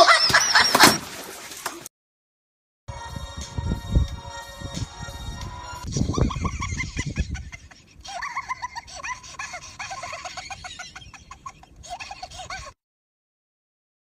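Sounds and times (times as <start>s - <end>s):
person laughing hard: 0.0s - 1.0s, 5.9s - 12.8s
background music: 2.9s - 7.0s.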